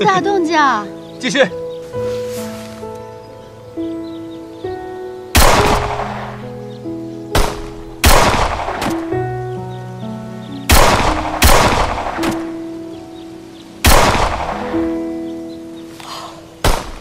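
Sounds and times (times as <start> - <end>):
pistol shots: 5.4 - 6.4, 7.4 - 9.2, 10.7 - 12.5, 13.8 - 14.8, 16.6 - 17.0.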